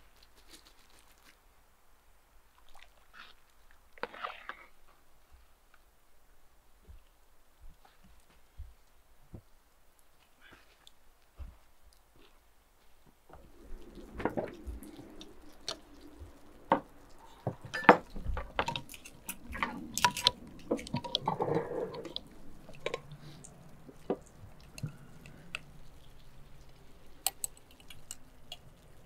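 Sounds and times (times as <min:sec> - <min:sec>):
brine sloshing: 0:13.3 - 0:29.0.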